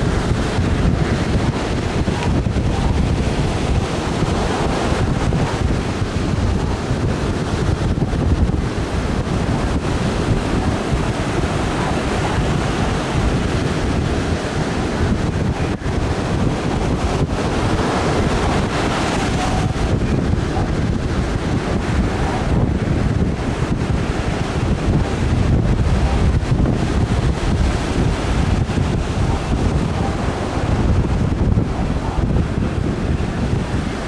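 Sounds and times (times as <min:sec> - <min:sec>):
ocean surf breaking: 0:00.0 - 0:34.0
wind buffeting microphone: 0:00.0 - 0:34.0.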